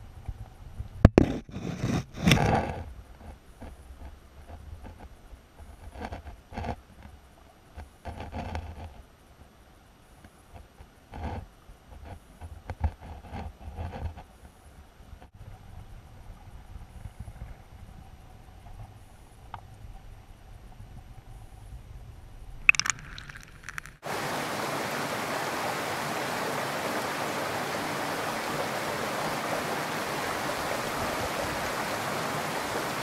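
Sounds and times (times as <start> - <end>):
creek water rushing over stones: 22.7 - 33.0.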